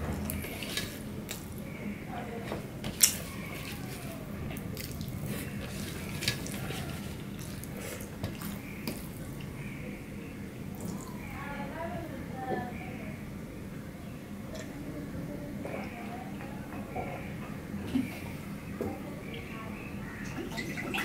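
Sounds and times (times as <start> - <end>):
person chewing: 2.9 - 9.5.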